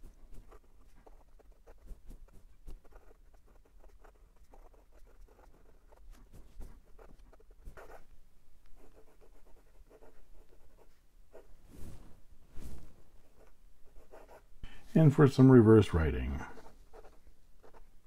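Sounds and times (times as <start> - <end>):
pen nib scratching on paper: 0.0 - 8.1, 8.7 - 11.5, 13.3 - 14.5, 16.5 - 18.0.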